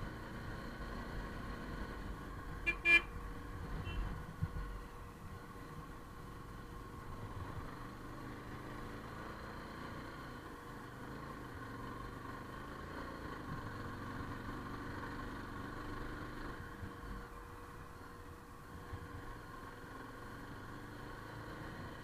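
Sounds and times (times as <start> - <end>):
motorcycle engine running: 0.0 - 17.4.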